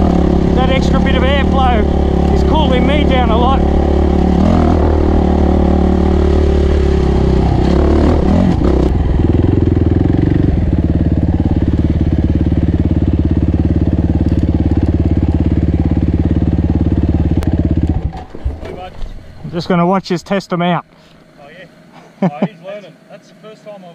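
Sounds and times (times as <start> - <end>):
motorcycle engine running and idling: 0.0 - 18.3.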